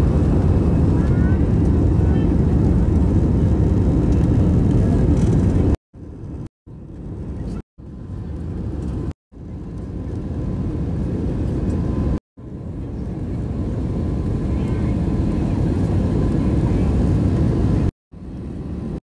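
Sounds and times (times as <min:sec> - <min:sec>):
jet engine rumble in cabin: 0:00.0 - 0:19.0.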